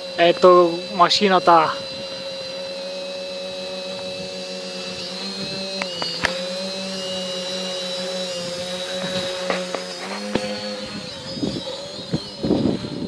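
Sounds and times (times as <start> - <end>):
quadcopter motors humming and whining: 0.0 - 13.0
sharp clicks: 4.9 - 6.7.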